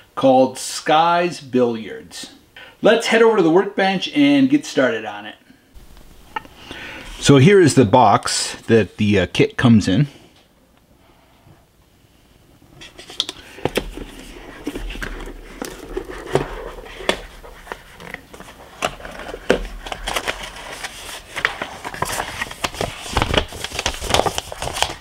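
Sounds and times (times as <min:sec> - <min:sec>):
paper sheets rustling: 0:12.8 - 0:25.0.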